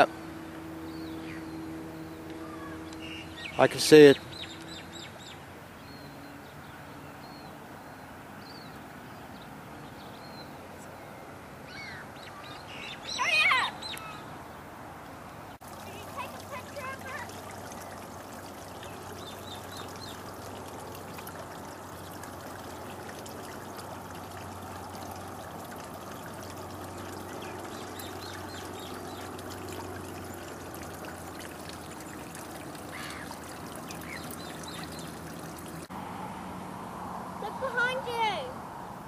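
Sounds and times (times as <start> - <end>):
shallow water trickling: 15.5 - 35.9.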